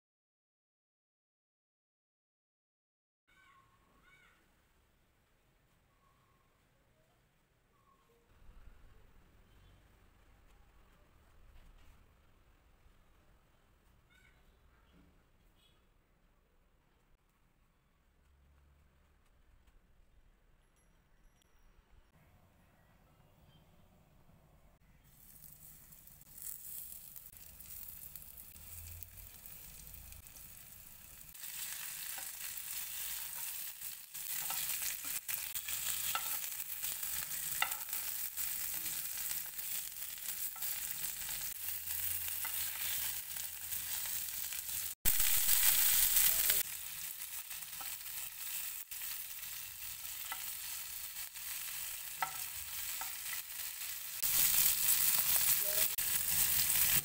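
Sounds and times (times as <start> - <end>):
fish sizzling in oil: 25.1 - 57.0.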